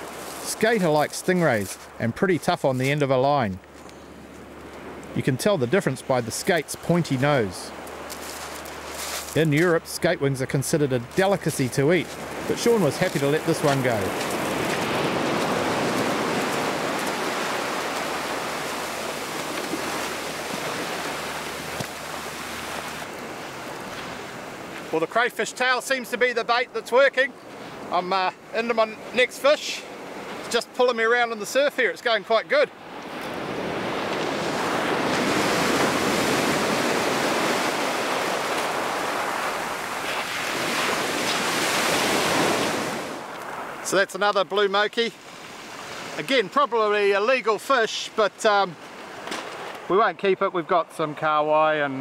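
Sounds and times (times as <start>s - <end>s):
surf breaking on beach: 0.0s - 2.0s, 5.2s - 26.6s, 32.5s - 49.9s.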